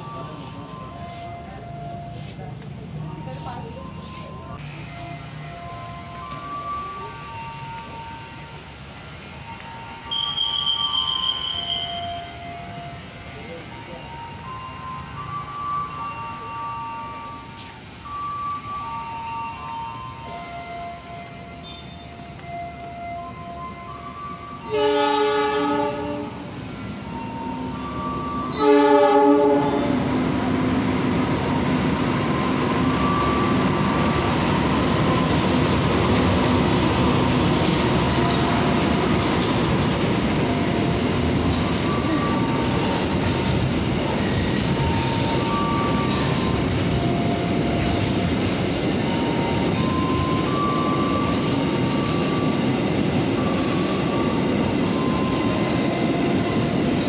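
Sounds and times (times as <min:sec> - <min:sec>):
train wheels rumbling on rails: 0:00.0 - 0:57.0
diesel locomotive horn: 0:21.3 - 0:22.3, 0:24.6 - 0:26.6, 0:28.1 - 0:30.3.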